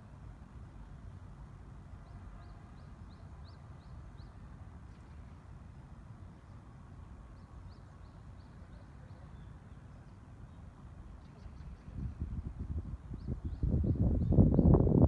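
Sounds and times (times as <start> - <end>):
songbird chirping: 7.3 - 12.0.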